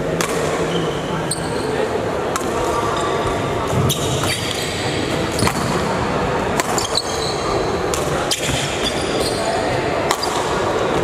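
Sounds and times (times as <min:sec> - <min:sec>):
echoing hall background: 0:00.0 - 0:11.0
badminton rackets hitting shuttlecock: 0:00.2 - 0:00.6, 0:02.3 - 0:05.9, 0:06.5 - 0:09.3, 0:10.0 - 0:10.9.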